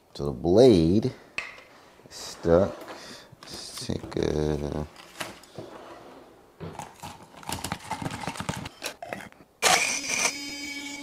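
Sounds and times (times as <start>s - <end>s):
blender motor crushing ice: 9.6s - 11.0s.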